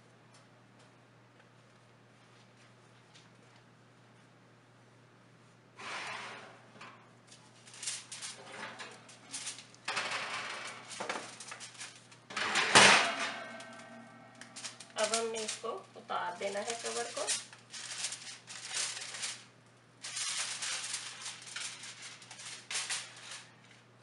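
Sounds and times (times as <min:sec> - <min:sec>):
glass dish scraping on oven rack: 0:05.8 - 0:06.9
dish clattering onto oven door: 0:12.3 - 0:14.0.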